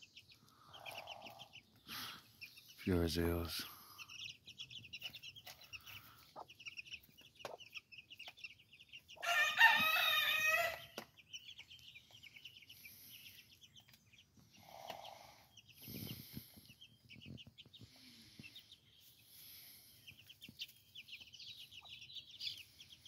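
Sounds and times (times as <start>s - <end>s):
chicks peeping: 0.0s - 23.0s
chicken calling: 9.2s - 11.0s.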